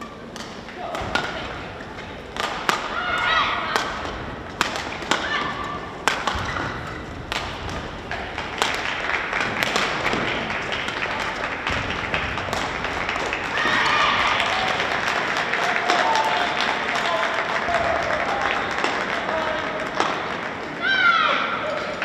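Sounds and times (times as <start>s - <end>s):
rackets hitting shuttlecocks: 0.0s - 16.3s.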